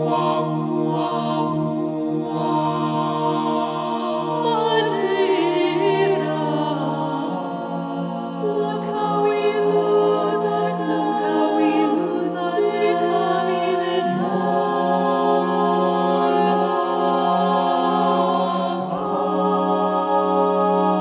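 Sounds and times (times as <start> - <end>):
mixed choir singing a cappella: 0.0 - 21.0.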